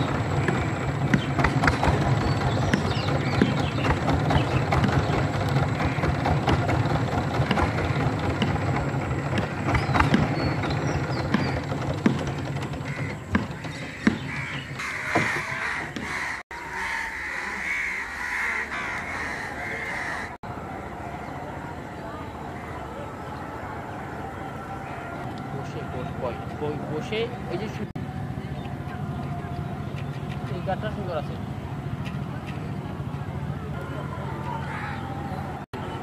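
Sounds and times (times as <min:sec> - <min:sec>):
low engine drone: 0:00.0 - 0:36.0
crows cawing: 0:12.8 - 0:20.4, 0:34.6 - 0:35.0.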